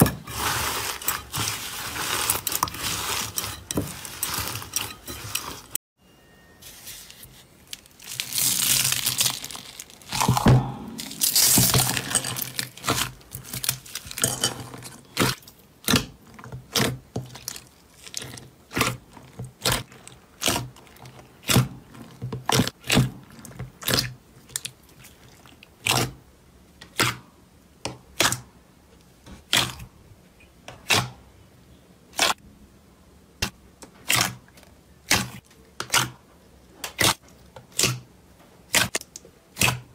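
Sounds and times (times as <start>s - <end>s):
foam beads crunching in slime: 0.3s - 4.7s, 6.6s - 14.4s.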